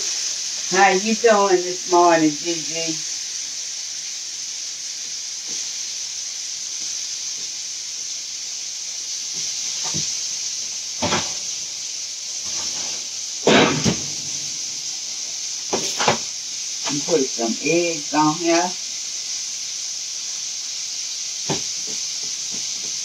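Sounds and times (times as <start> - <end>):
food frying in a pan: 0.0 - 23.0
cookware clattering: 13.4 - 14.2.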